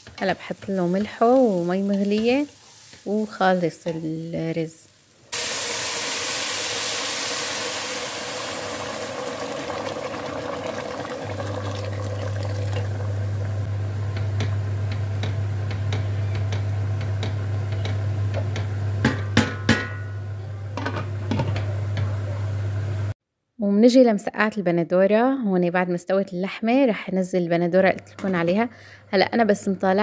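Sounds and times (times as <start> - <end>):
water pouring into pot: 5.4 - 13.6.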